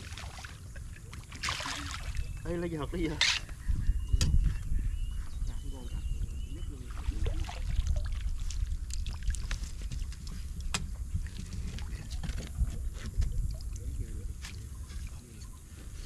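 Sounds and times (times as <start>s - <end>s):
small splashes: 0.0s - 2.4s, 6.8s - 12.4s
wind buffeting microphone: 0.7s - 16.0s.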